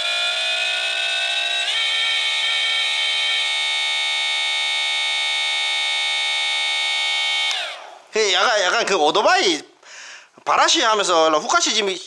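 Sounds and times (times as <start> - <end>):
electric motor whining: 0.0 - 8.1.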